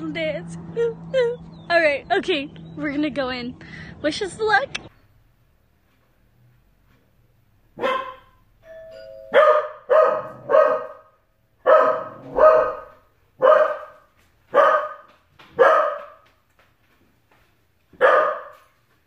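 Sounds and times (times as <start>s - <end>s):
dog barking: 7.8s - 8.4s, 9.3s - 16.2s, 18.0s - 18.8s
two-note doorbell chime: 8.6s - 9.6s.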